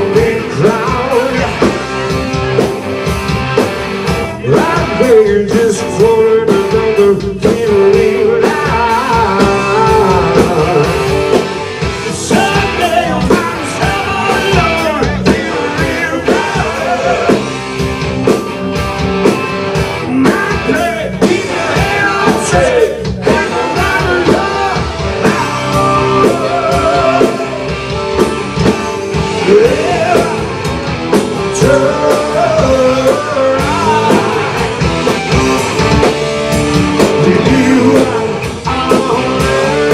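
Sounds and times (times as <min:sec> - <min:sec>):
lead singer singing: 0:00.0 - 0:02.1, 0:04.3 - 0:17.7, 0:20.0 - 0:27.8, 0:29.2 - 0:30.7, 0:31.4 - 0:35.1, 0:37.0 - 0:39.9
distorted electric guitars: 0:00.0 - 0:39.9
drum kit: 0:00.0 - 0:39.9.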